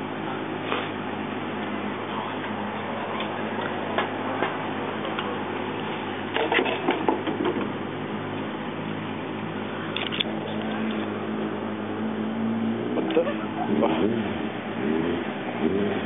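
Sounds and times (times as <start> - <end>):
bus diesel engine idling: 0.0 - 12.1.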